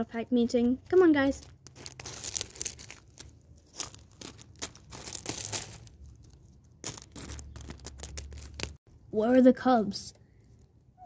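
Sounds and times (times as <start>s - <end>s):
stones and gravel crackling: 0.4s - 8.8s.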